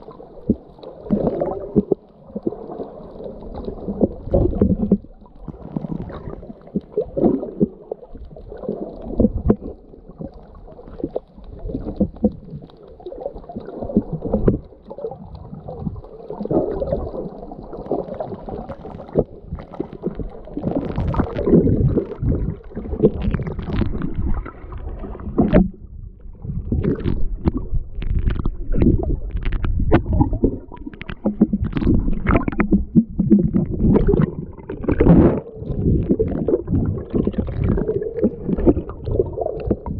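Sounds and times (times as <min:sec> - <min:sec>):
choppy splashes and bubbling: 0:00.0 - 0:39.9
muffled underwater sloshing: 0:00.0 - 0:39.9.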